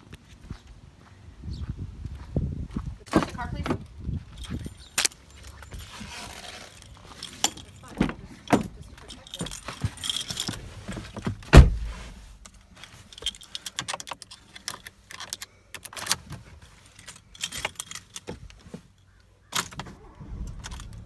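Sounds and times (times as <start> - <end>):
car keys jangling: 4.2 - 16.2, 16.8 - 19.0, 19.6 - 21.0
heavy thump: 11.4 - 12.1.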